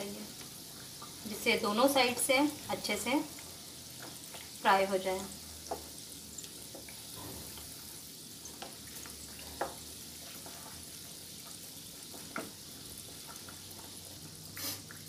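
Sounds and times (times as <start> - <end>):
oil sizzling: 0.0 - 15.0
wooden spatula knocking pan: 5.6 - 5.9.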